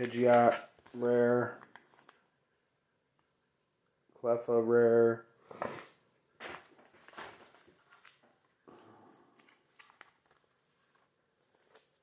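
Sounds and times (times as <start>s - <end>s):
plastic sleeve pages rustling: 0.0s - 2.3s, 6.4s - 8.6s, 9.3s - 12.0s.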